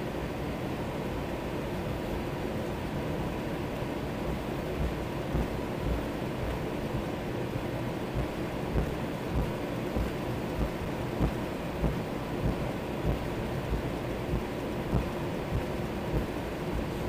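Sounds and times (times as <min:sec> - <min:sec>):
jet engines idling: 0:04.3 - 0:17.0.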